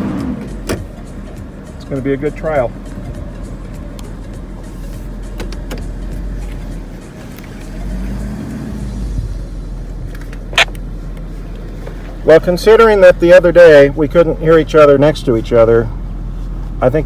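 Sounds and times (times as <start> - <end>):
truck engine and road rumble: 0.0 - 17.0.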